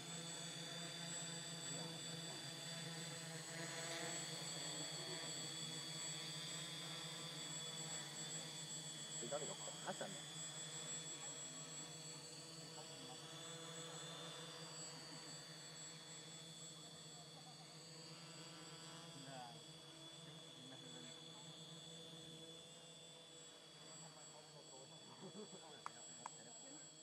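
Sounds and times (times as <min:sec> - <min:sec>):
quadcopter motors whining: 0:00.0 - 0:27.0.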